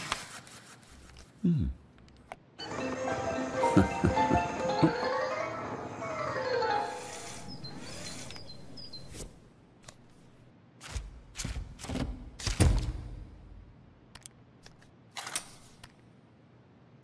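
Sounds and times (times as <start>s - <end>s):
music tune: 2.6s - 7.6s.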